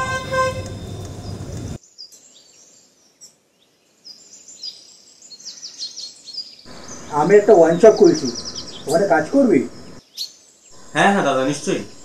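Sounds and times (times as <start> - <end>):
vehicle horn tooting: 0.0 - 1.0
street traffic noise: 0.0 - 1.8, 6.7 - 10.0, 10.7 - 12.0
faint bird chirps: 0.8 - 12.0.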